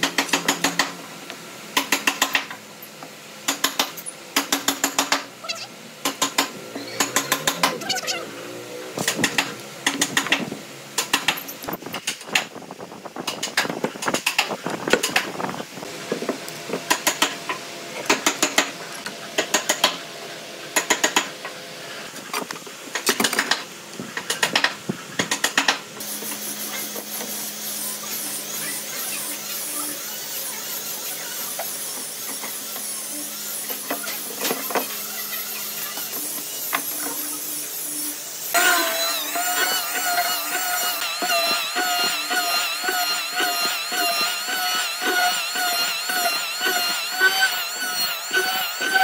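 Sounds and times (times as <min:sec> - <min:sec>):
machine hum with high whine: 0:00.0 - 0:24.2, 0:26.0 - 0:49.0.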